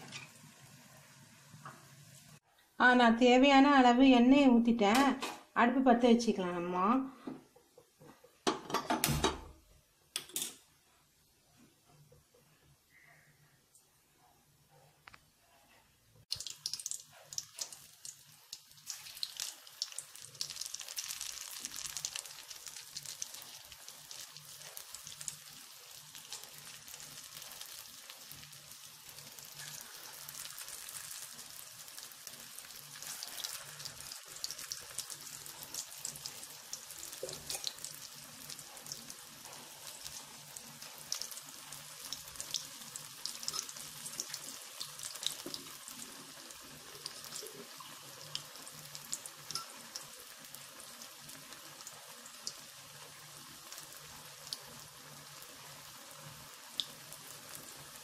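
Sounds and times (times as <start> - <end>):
batter deep-frying in oil: 0.0 - 2.5, 16.2 - 58.0.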